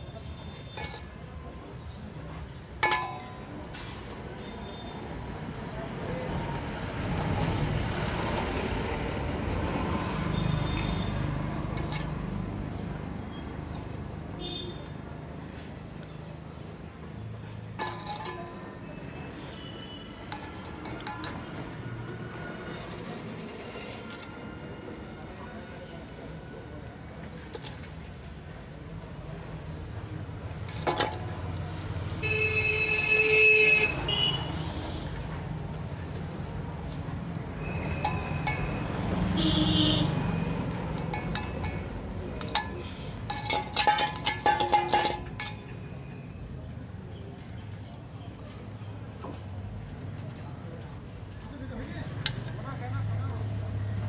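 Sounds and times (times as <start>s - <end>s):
metallic clinks over steel bowl: 0.6s - 1.3s, 2.8s - 3.7s, 10.6s - 12.4s, 17.8s - 19.0s, 20.3s - 21.6s, 30.7s - 31.6s, 37.6s - 39.2s, 40.5s - 46.4s
passing traffic rumble: 5.0s - 54.0s
vehicle horn: 32.2s - 35.0s, 39.3s - 40.2s.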